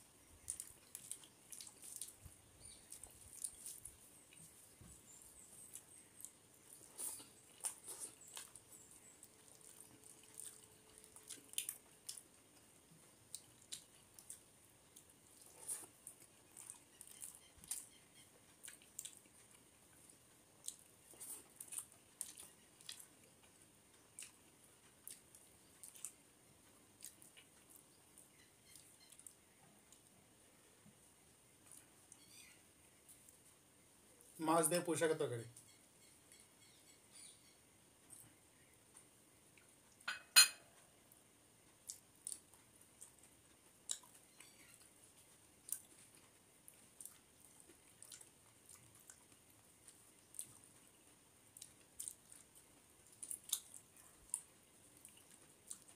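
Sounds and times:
fingers mixing rice squishing: 0.2 - 26.2
mouth chewing: 0.3 - 30.2, 38.1 - 55.9
steel bowl clinking down: 40.1 - 40.6.

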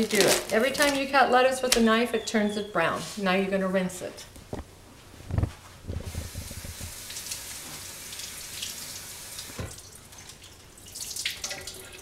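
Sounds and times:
faucet running over lettuce: 6.1 - 12.0.

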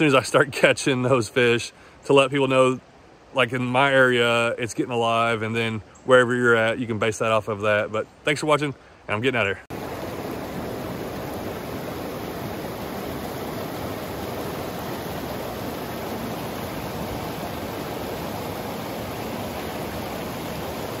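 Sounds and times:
water rushing over rocks: 9.2 - 21.0.

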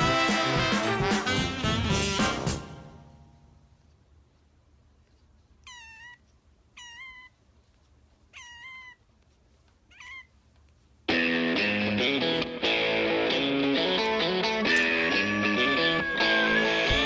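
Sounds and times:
loud guitar music: 0.0 - 3.1, 11.1 - 17.0
kitten mewing: 5.6 - 7.4, 8.3 - 9.1, 9.9 - 10.4.

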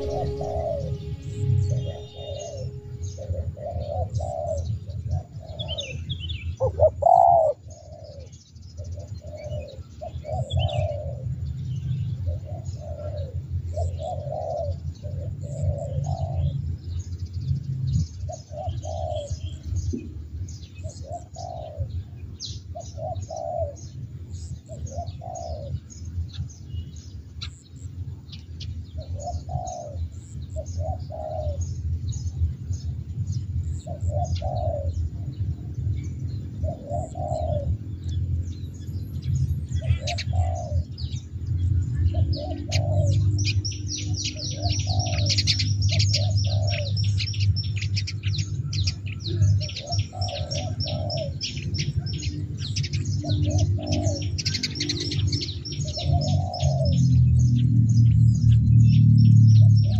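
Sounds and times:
low steady hum: 0.0 - 6.6
small birds chirping: 0.0 - 59.9
dove cooing: 6.6 - 8.3, 12.5 - 16.5, 21.0 - 21.9, 22.8 - 23.8, 24.7 - 25.8, 29.0 - 30.0, 30.6 - 31.6, 33.9 - 35.3, 36.6 - 37.8, 39.8 - 41.0, 42.1 - 43.5, 44.2 - 52.2, 52.8 - 57.0.

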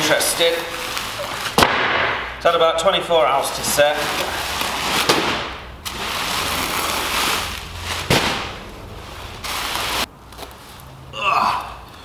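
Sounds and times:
plastic sacks rustling: 0.0 - 1.9, 3.2 - 11.6
sharp knock: 1.6 - 2.4
sacks dropped on wooden pallet: 4.9 - 5.6, 8.0 - 8.6.

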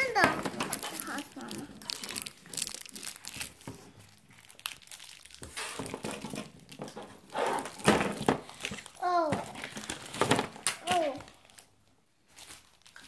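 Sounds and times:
toy packaging crinkling: 0.0 - 13.0.

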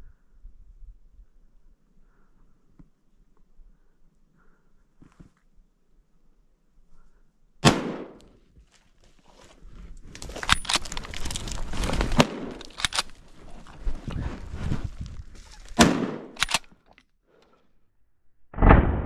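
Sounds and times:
rifle shot: 7.6 - 8.3, 12.2 - 13.1, 15.8 - 16.6, 18.6 - 19.0
footsteps crunching in snow: 8.6 - 16.0
sharp clicks: 10.2 - 11.6, 12.2 - 13.2, 15.8 - 17.0.

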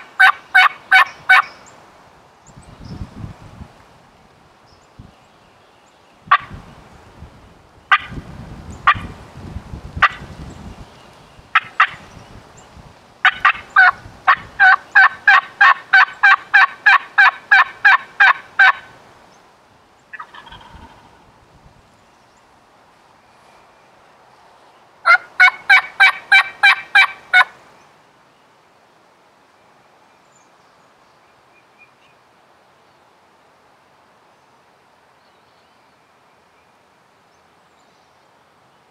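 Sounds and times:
wild turkey yelping: 0.2 - 1.6, 13.2 - 18.9, 20.1 - 21.1, 25.0 - 27.5.

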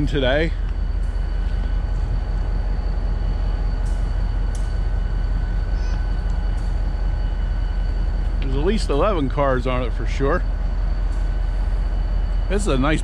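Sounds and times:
thin constant whine: 0.0 - 13.0
train machinery rumble: 0.0 - 13.0.

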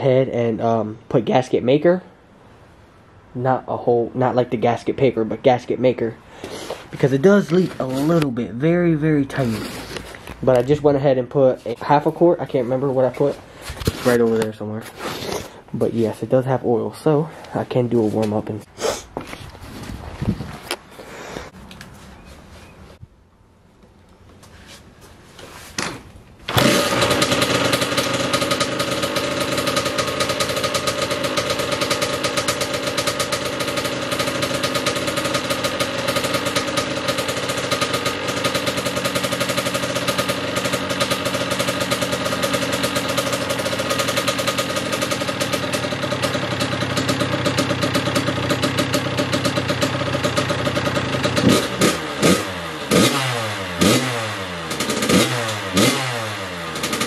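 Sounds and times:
dirt bike engine idling and revving: 6.8 - 14.4, 26.5 - 57.0.

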